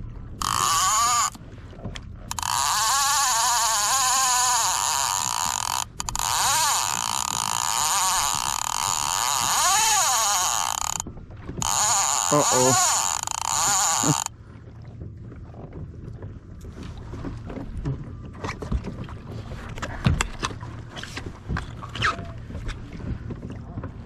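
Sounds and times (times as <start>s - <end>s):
fishing reel whirring: 0.4s - 1.4s, 2.3s - 11.0s, 11.6s - 14.3s.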